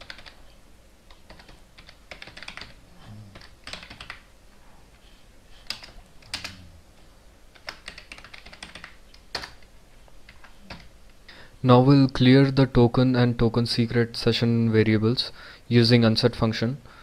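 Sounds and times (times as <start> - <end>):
typing on computer keyboard: 0.0 - 0.4, 1.1 - 4.2, 5.6 - 6.6, 7.5 - 9.7.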